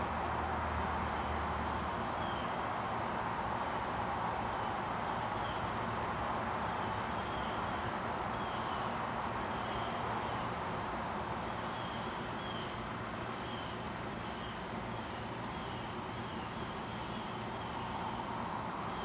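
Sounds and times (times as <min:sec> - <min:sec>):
distant traffic hum: 0:00.0 - 0:19.0.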